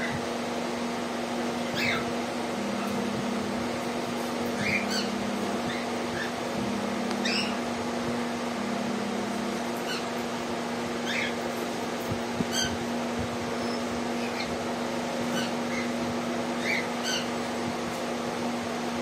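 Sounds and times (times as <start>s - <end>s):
steady low hum: 0.0s - 19.0s
parrots chirping: 1.6s - 2.1s, 4.5s - 6.4s, 7.2s - 7.6s, 9.8s - 10.1s, 11.0s - 11.4s, 12.5s - 12.8s, 15.2s - 15.9s, 16.6s - 17.3s.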